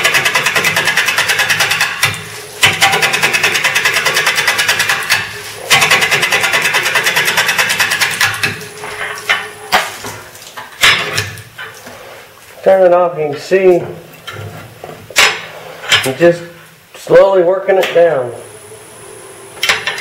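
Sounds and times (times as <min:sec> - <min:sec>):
lathe gouge chattering on wood: 0:00.0 - 0:08.6.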